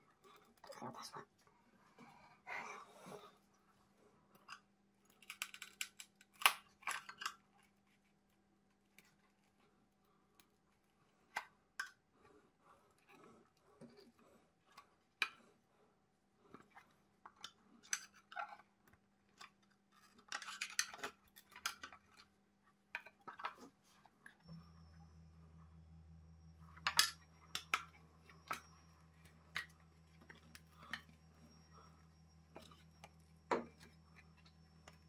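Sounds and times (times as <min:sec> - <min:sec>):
steady low hum: 0:23.8 - 0:35.0
metal parts clinking on stone: 0:26.7 - 0:31.2.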